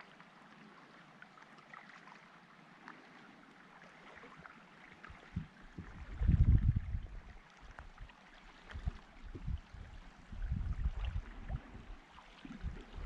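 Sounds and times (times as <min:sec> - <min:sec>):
paddle thumps and splashes: 0:05.0 - 0:13.0.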